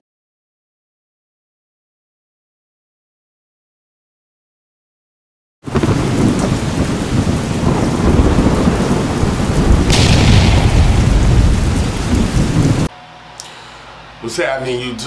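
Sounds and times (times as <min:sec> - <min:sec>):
steady rain: 0:05.6 - 0:12.9
rumbling thunder: 0:05.7 - 0:12.9
thunder crack: 0:05.7 - 0:12.9.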